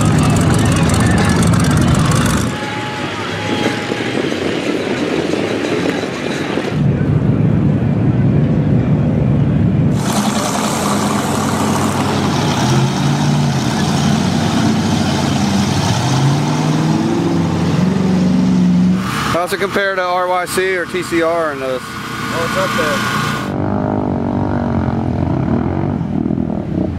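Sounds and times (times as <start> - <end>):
truck engines revving: 0.0 - 26.9.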